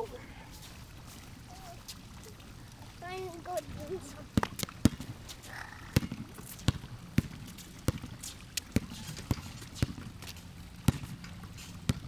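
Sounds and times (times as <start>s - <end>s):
basketball bouncing on pavement: 4.3s - 12.0s.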